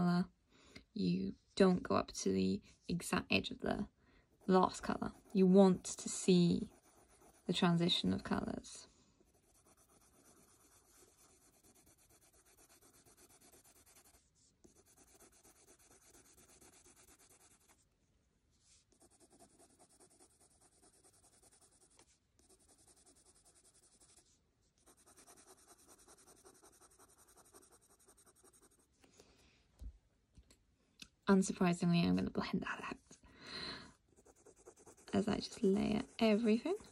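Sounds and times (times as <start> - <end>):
pencil scratching on paper: 4.4 - 8.6, 9.2 - 17.8, 18.7 - 28.9, 34.1 - 36.9.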